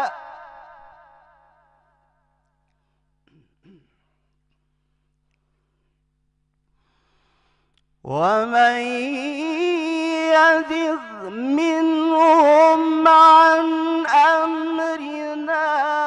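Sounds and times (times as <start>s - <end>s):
man reciting melodically: 0.0s - 1.3s, 8.1s - 16.0s.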